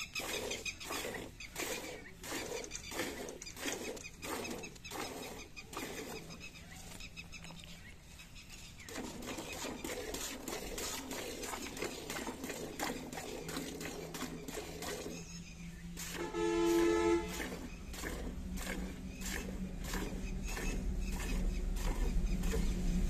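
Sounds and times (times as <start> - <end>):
milk squirting into a pail: 0.0 - 6.4, 8.9 - 15.2, 16.0 - 22.8
steady pitched honk: 16.1 - 17.6.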